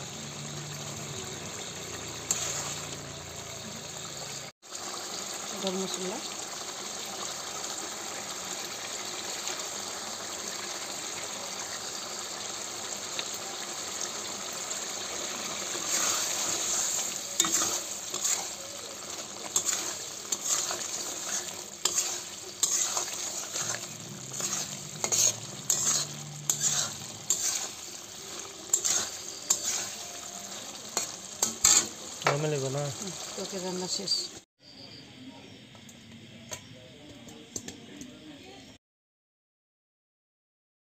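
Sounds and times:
vegetables sizzling in pan: 0.0 - 34.4
spatula scraping pan: 1.9 - 3.2, 15.0 - 32.5.

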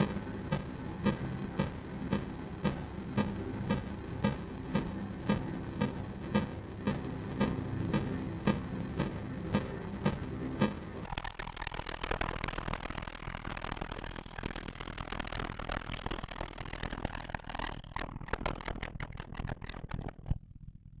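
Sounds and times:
distorted cello: 0.0 - 11.1.

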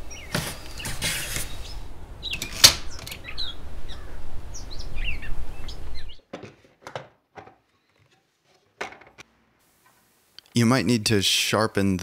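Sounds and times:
small birds chirping: 0.0 - 6.3.

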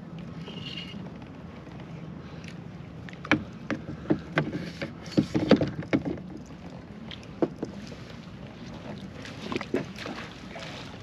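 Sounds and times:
knocks and thumps on a kayak: 3.2 - 6.5, 7.3 - 7.8.

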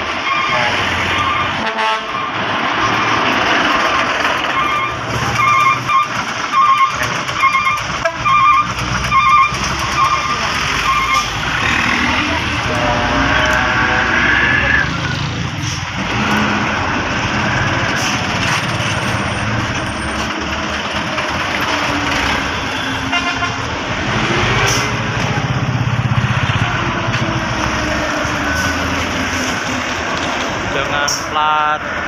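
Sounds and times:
diesel engines running: 0.0 - 32.0
road noise: 0.0 - 32.0
vehicle horn: 0.4 - 2.4, 12.0 - 14.2, 22.5 - 23.7.

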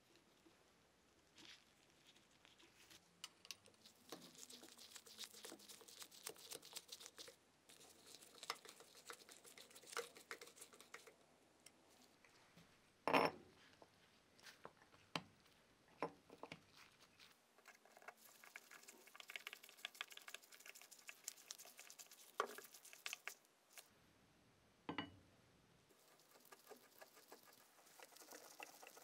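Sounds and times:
rustling: 0.0 - 11.1, 16.4 - 24.0, 25.9 - 29.0
rapid small ticks: 17.7 - 23.4, 26.0 - 29.0.

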